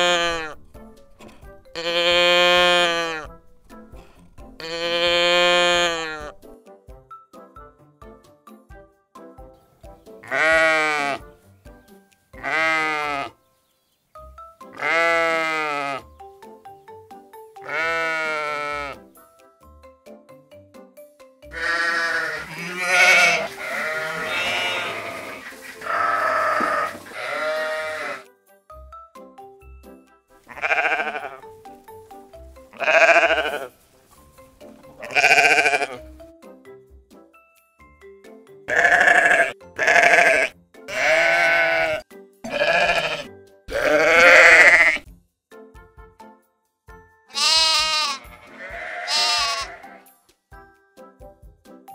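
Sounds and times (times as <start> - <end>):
sheep bleating: 0.0 - 0.6, 1.7 - 3.4, 4.6 - 6.4, 10.2 - 11.2, 12.4 - 13.4, 14.7 - 16.1, 17.6 - 19.0, 21.5 - 28.3, 30.5 - 31.5, 32.7 - 33.7, 35.0 - 36.0, 38.7 - 45.0, 47.3 - 50.1
light background music: 0.0 - 51.9.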